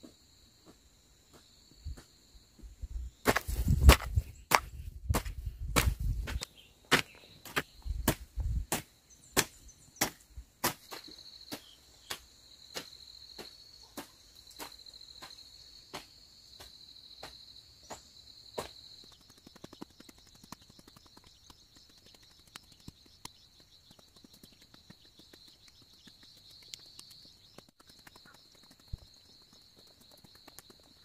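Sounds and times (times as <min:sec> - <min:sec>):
hoe striking soil: 0:03.2 - 0:15.3.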